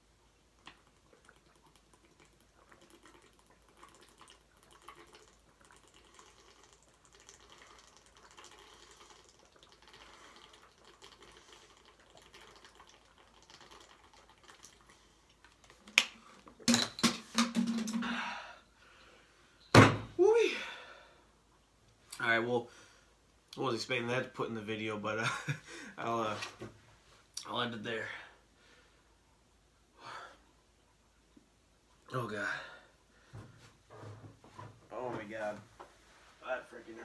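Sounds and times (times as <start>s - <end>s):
man gulping a drink: 0.5s - 16.8s.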